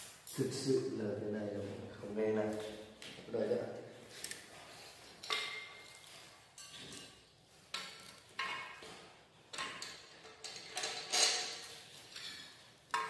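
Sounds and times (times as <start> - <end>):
light metallic clinks: 9.6 - 13.0.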